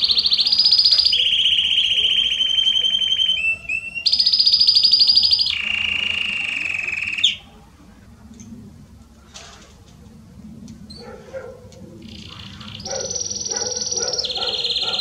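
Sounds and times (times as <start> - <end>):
canary singing trills: 0.0 - 7.6, 12.0 - 15.0.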